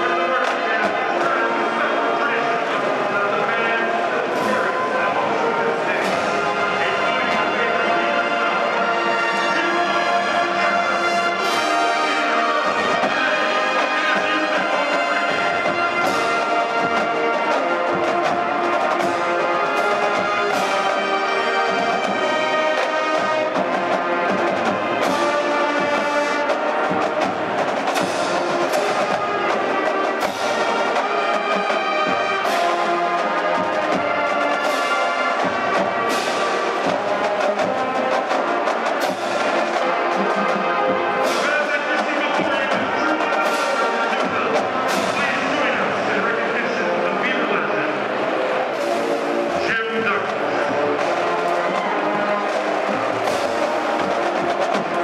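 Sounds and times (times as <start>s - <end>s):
marching band playing: 0.0s - 55.0s
percussion hits: 4.2s - 46.8s, 48.0s - 55.0s.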